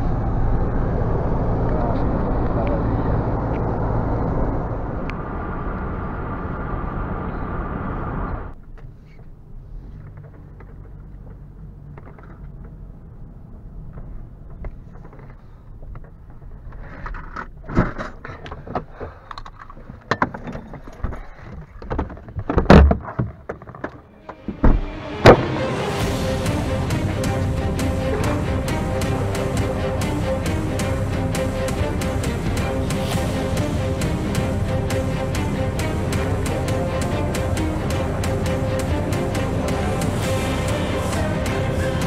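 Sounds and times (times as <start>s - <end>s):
low hum: 0.0s - 8.8s, 24.0s - 42.0s
car road and engine noise: 0.0s - 42.0s.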